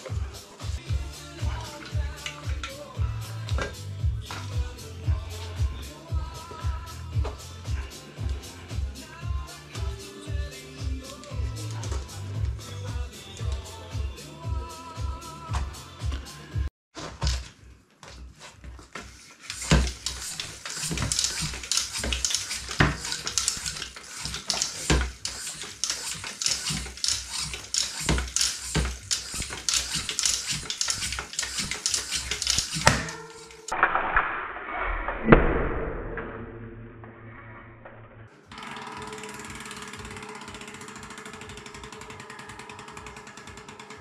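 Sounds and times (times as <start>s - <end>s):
floor pump strokes: 17.0s - 33.7s.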